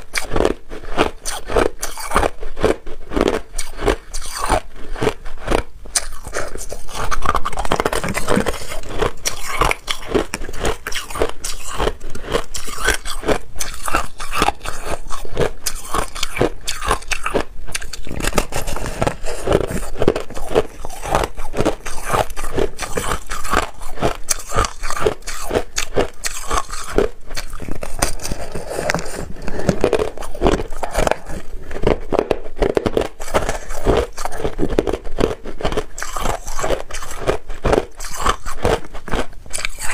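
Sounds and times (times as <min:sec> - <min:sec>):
person crunching ice: 0:00.0 - 0:39.9.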